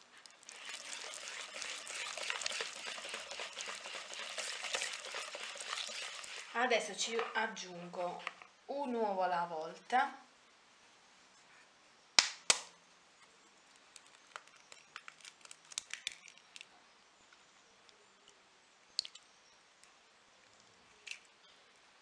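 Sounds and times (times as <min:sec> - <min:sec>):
eggshell crackling: 0:00.0 - 0:08.4, 0:13.7 - 0:16.7.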